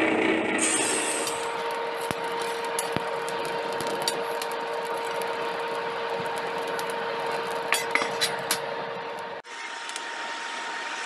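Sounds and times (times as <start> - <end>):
forge air blast rushing: 0.0 - 1.9
steady hum: 0.0 - 11.0
fire crackles and clicks: 0.8 - 10.1.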